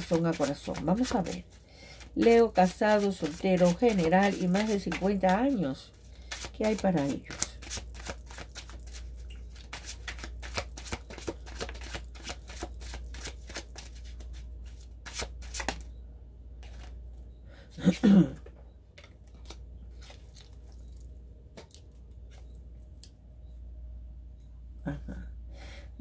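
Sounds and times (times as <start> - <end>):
cards being shuffled: 0.0 - 5.7, 6.3 - 15.9, 16.6 - 17.0, 19.0 - 20.8
steady low hum: 15.7 - 26.0.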